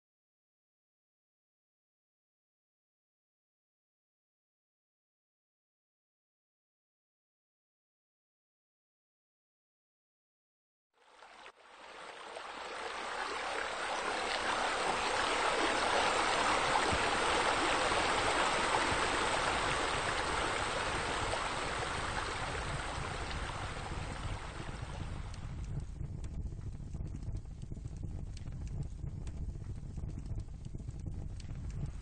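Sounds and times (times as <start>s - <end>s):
water pouring and splashing: 11.1s - 25.5s.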